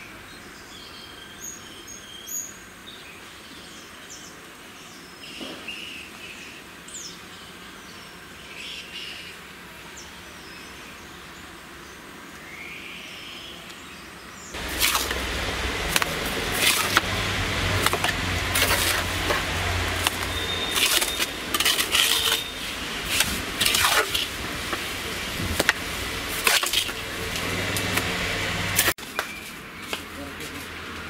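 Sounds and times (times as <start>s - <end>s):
low steady hum: 9.2s - 29.0s
scrapes and knocks on brick: 17.8s - 22.5s.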